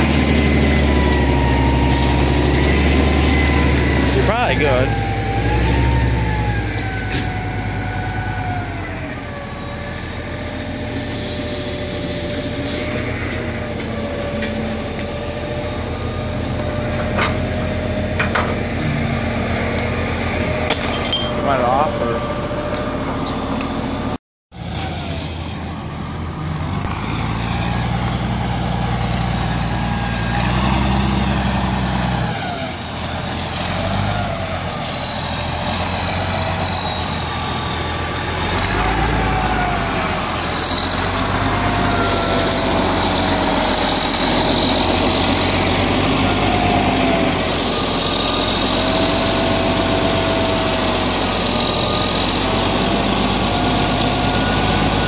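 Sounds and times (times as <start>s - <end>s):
diesel engine rumbling: 0.0s - 55.0s
wavering engine whine: 0.0s - 55.0s.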